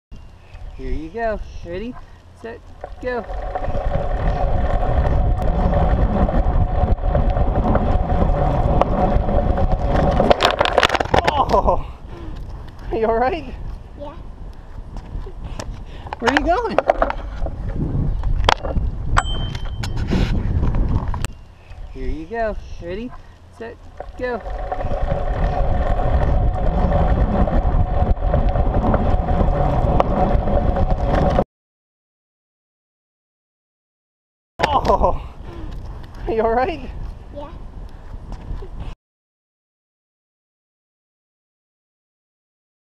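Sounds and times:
bicycle rolling along: 0.2s - 31.4s, 35.4s - 38.9s
wind buffeting microphone: 0.6s - 10.8s, 11.4s - 31.4s, 34.9s - 39.0s.

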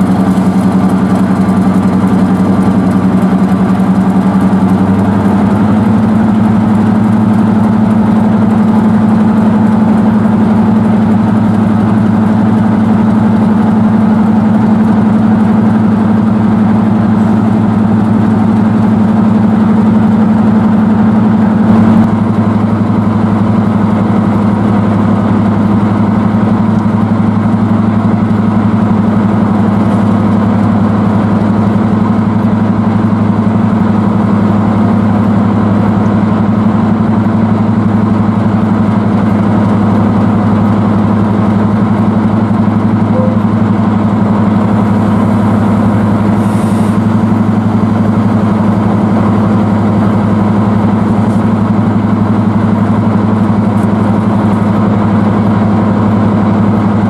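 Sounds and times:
diesel locomotive engine running: 0.0s - 57.0s.

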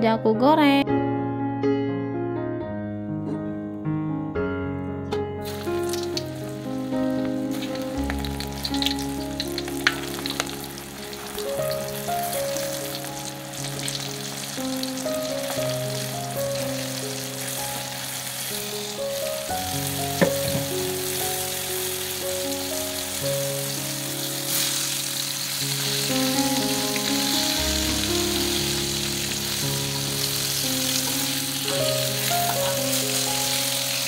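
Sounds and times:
background music held notes: 2.7s - 34.0s
oil popping: 5.4s - 11.7s, 20.0s - 21.0s
shrimp sizzling in hot oil: 5.4s - 34.0s.

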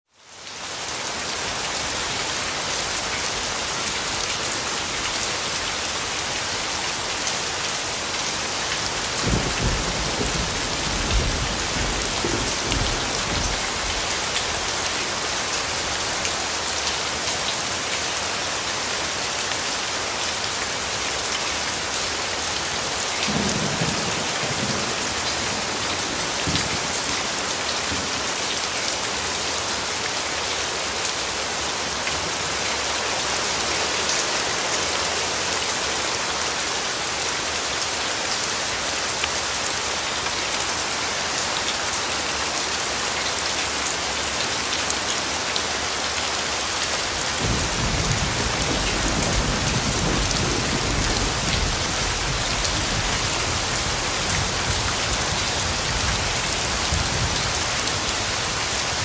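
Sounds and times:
rain on hard surfaces: 0.1s - 59.0s
distant thunder rumble: 9.2s - 14.0s.

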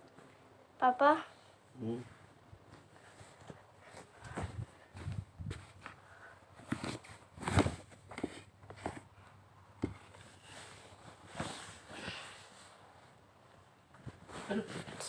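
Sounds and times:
phone rustling against bedding: 2.6s - 9.2s.

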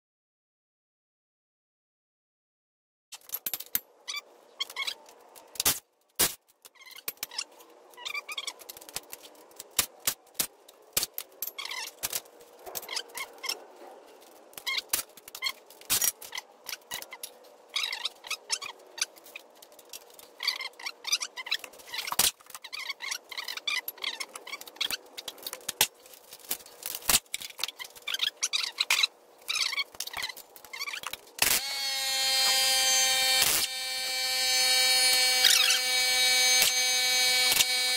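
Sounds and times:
power tool whining: 31.4s - 37.9s.

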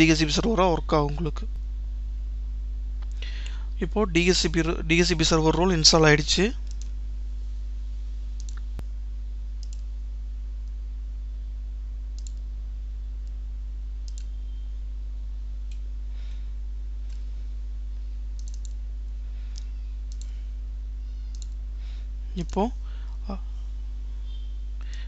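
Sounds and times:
steady low hum: 0.0s - 25.0s
computer mouse clicking: 6.6s - 6.9s, 8.4s - 8.6s, 9.6s - 9.9s, 12.2s - 12.4s, 14.0s - 14.4s, 18.4s - 18.8s, 19.5s - 20.4s, 21.3s - 21.6s.

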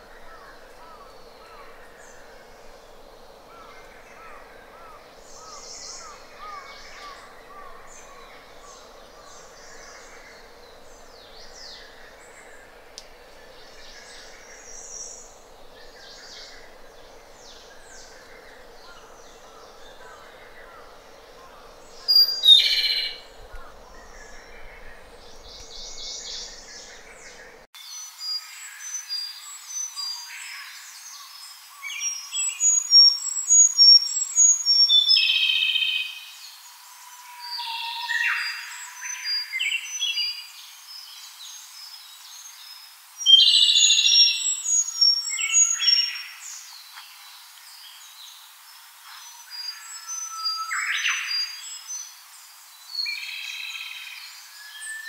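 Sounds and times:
faint bird chirps: 0.0s - 27.7s
steady hiss: 0.0s - 37.1s.

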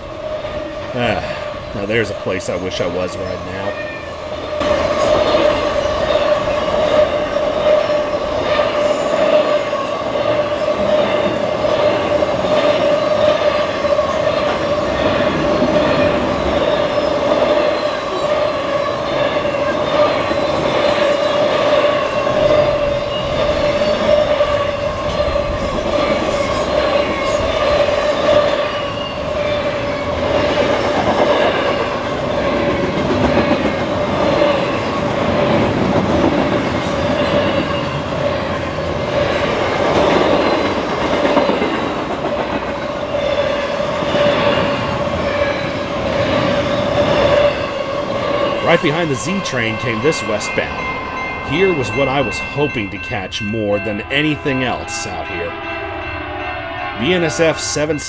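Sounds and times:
train wheels rumbling on rail: 0.0s - 58.0s
steady high tone: 42.9s - 58.0s.

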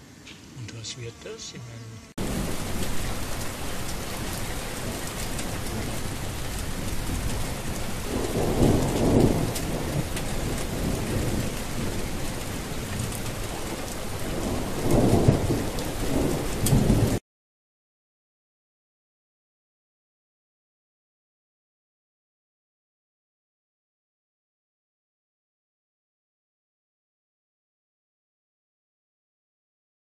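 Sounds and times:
heavy rain: 2.2s - 17.2s
thunder rumbling: 2.2s - 17.2s.

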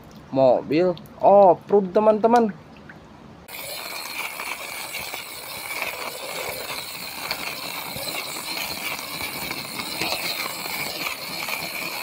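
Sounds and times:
high-pitched outdoor hum: 3.4s - 12.0s
toy car wheels on gravel: 3.5s - 12.0s.

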